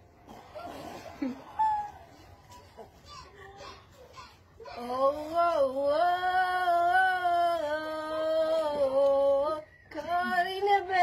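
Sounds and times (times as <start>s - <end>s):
girls singing: 4.6s - 11.0s.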